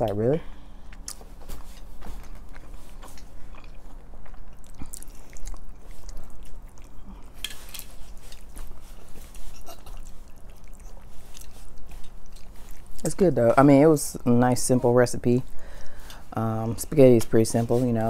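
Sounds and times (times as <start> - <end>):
people chewing spaghetti: 0.0 - 14.2.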